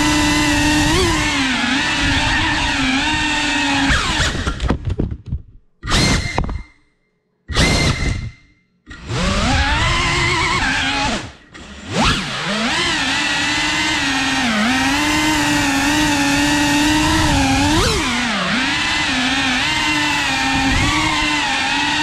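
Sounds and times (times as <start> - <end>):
drone propellers whining: 0.0 - 4.6, 7.5 - 22.0.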